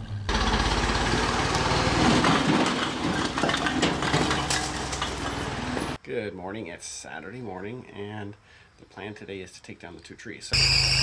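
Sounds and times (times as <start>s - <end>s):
backhoe engine running: 0.0s - 6.0s
bricks clattering and crunching: 2.0s - 6.0s.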